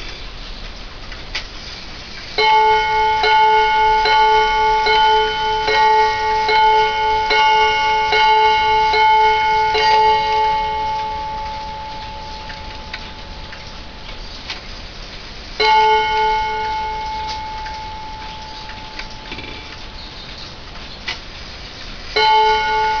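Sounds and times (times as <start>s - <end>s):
wall clock chime strikes: 2.4s - 14.6s, 15.6s - 20.2s, 22.2s - 23.0s.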